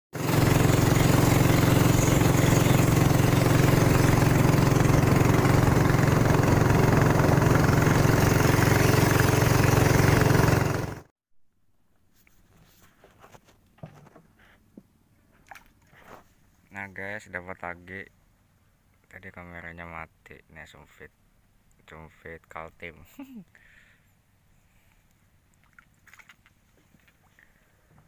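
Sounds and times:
boat motor running: 0:00.2 - 0:11.1
faint knocks and rustles: 0:12.1 - 0:14.9.

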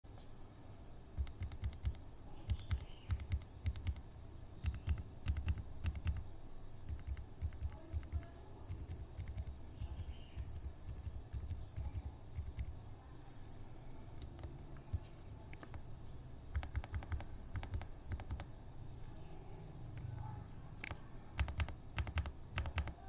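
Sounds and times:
soft keyboard typing: 0:01.1 - 0:18.6, 0:19.2 - 0:23.0.

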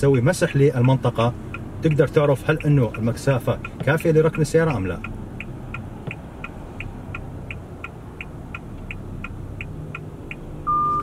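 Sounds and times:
low engine and cabin hum: 0:00.0 - 0:11.0
turn signal ticking: 0:00.0 - 0:11.0.

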